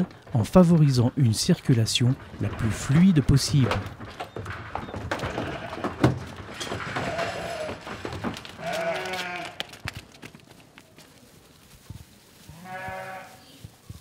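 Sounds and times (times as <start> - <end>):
sheep hooves clattering: 0.0 - 14.0
sheep bleating: 8.6 - 9.7, 12.5 - 13.6.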